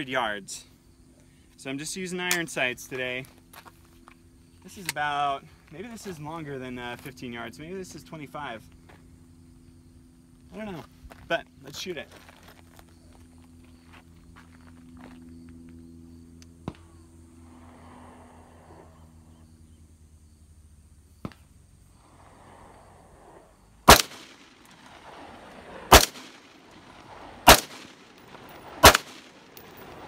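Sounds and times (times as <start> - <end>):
rifle shots with echo: 23.8 - 30.0.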